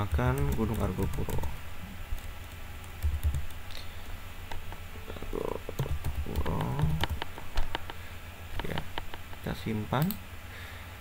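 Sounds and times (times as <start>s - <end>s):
computer keyboard typing: 0.0s - 8.0s
low steady hum: 0.0s - 11.0s.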